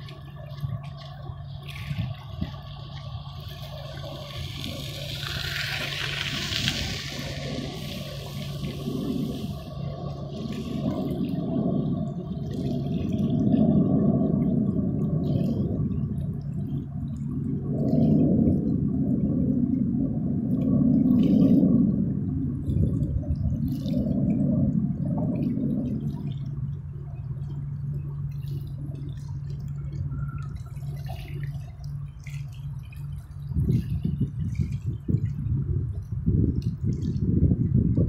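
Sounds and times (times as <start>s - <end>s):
distant jet engines roaring: 0.0s - 27.2s.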